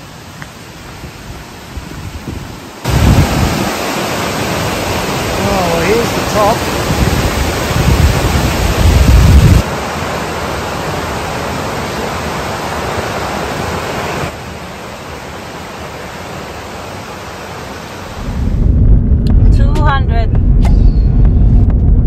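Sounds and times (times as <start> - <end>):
waterfall rushing water: 0.0 - 18.4
deep rumble: 18.1 - 22.0.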